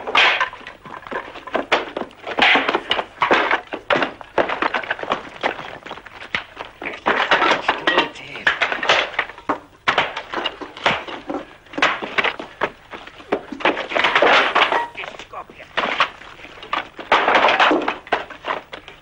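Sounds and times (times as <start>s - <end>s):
fight knocks thuds and clatter: 0.0s - 15.0s.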